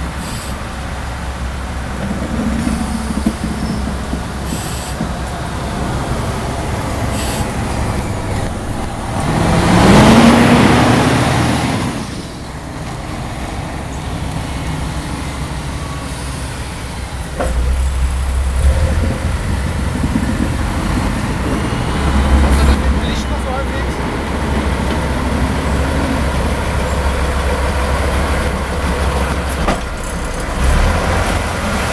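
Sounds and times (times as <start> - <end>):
diesel railbus engine rumbling: 0.0 - 31.9
rising noise swell: 5.5 - 12.6, 14.9 - 28.0.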